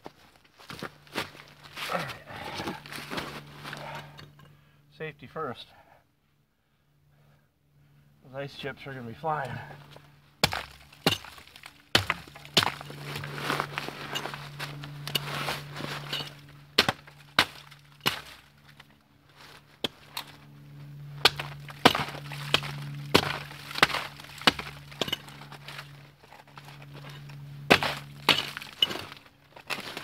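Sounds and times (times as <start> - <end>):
hand tool chipping ice: 10.4 - 18.8, 21.2 - 30.0.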